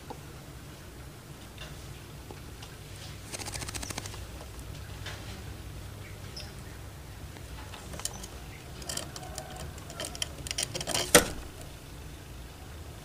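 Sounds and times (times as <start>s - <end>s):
rapid clicks and rattles: 3.2s - 4.6s, 7.4s - 11.8s.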